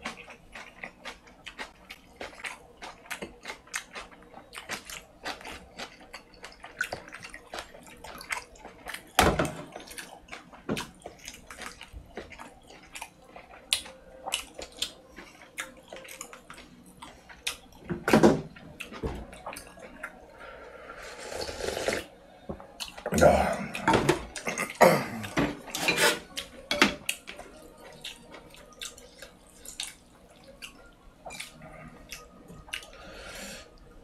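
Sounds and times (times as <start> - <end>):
man chewing noodles: 0.0 - 17.8, 18.5 - 22.1, 22.7 - 34.0
slurping noodles and broth: 20.9 - 22.1, 25.7 - 26.3.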